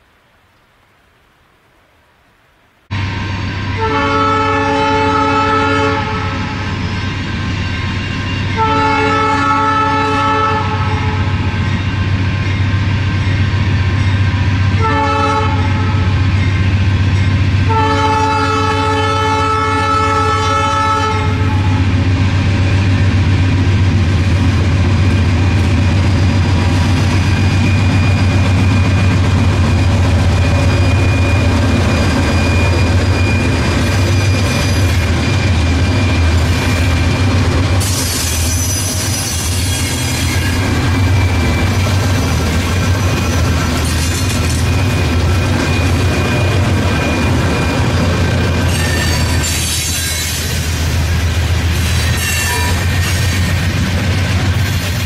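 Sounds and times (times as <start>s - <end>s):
locomotive horn: 3.8s - 6.8s, 8.1s - 11.6s, 14.7s - 16.3s, 17.6s - 22.0s, 36.0s - 40.8s, 51.8s - 53.4s
rail clatter: 21.6s - 55.0s.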